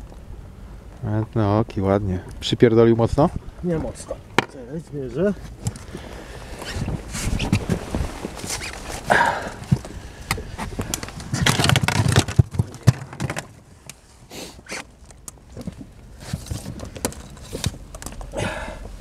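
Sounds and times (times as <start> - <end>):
rustling: 5.3 - 19.0
knocks and clicks in inflatable boat: 9.5 - 13.6.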